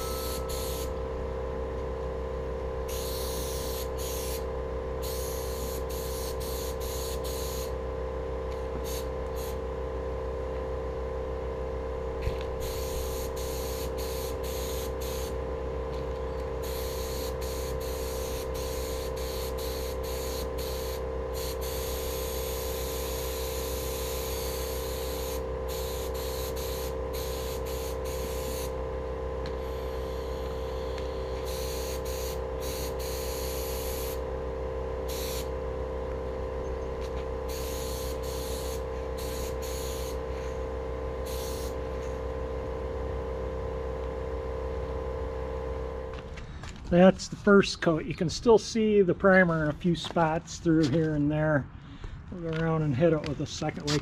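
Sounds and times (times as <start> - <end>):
paint spray gun hissing: 0.0 - 0.9, 2.9 - 4.4, 5.0 - 7.7, 8.8 - 9.6, 12.6 - 15.4, 16.6 - 28.8, 29.6 - 34.2, 35.1 - 35.5, 37.4 - 40.6, 41.2 - 42.0
steady hum: 0.0 - 54.0.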